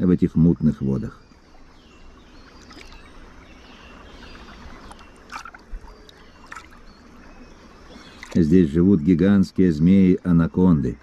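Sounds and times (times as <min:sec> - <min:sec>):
animal lapping water: 0:02.5 - 0:03.3, 0:04.1 - 0:06.9, 0:07.9 - 0:08.4.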